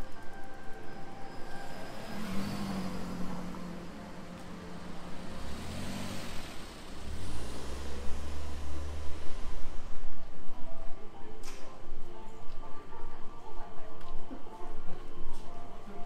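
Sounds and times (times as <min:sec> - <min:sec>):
van engine hum: 0:00.0 - 0:10.6
car passing: 0:01.4 - 0:10.1.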